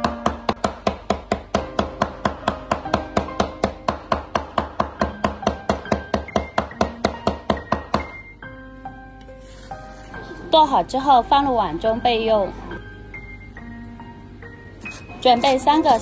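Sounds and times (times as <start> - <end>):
cleaver chopping on wooden board: 0.0 - 8.2.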